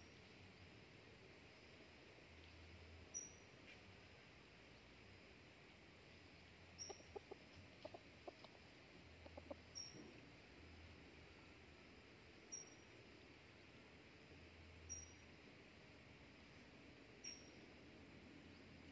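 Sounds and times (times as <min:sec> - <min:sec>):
thin high chirp: 0:03.1 - 0:03.5, 0:17.2 - 0:17.6
rooster clucking: 0:06.8 - 0:09.8.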